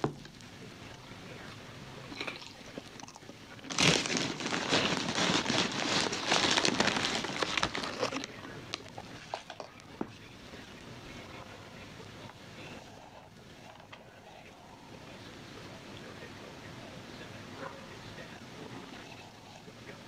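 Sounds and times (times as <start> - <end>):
person crunching food: 2.1 - 9.8
plastic packaging crinkling: 3.6 - 9.7.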